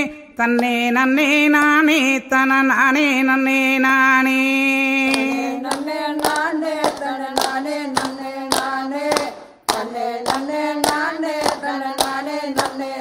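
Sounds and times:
crowd clapping in time: 5.1s - 13.0s.

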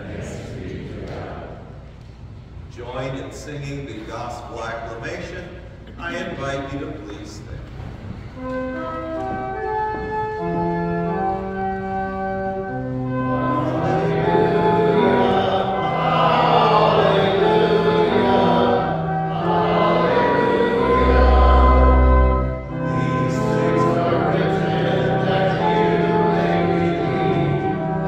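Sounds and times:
congregation singing: 0.0s - 2.0s, 8.4s - 28.0s
church organ chords: 8.3s - 28.0s.

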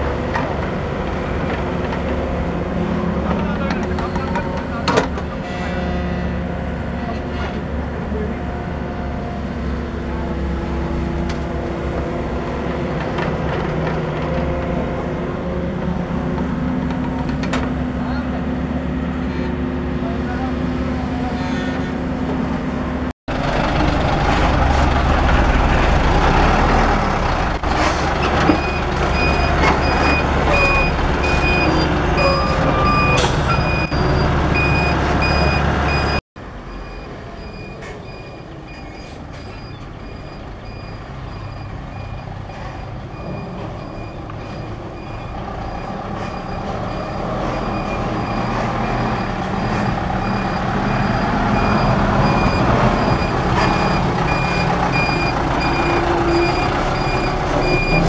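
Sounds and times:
diesel truck engine running: 6.8s - 58.0s
reversing alarm beeping: 28.5s - 58.0s.

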